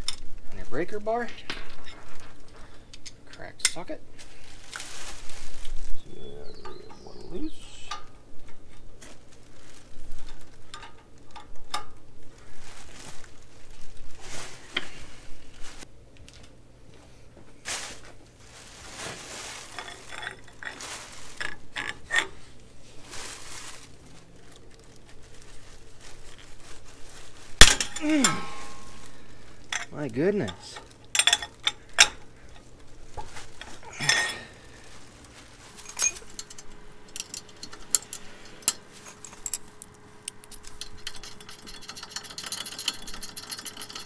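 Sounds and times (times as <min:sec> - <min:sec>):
metal tool clicks and clinks: 0:29.7 - 0:32.2, 0:35.9 - 0:44.0.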